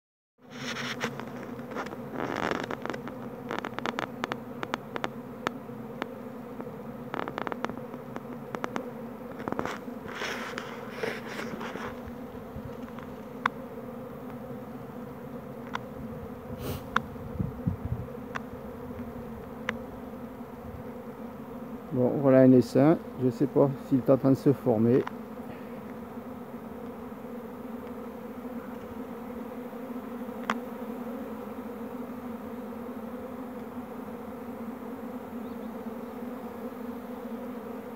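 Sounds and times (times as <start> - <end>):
bees humming: 0.4 - 37.9
sharp clicks and crackles: 0.7 - 9.9.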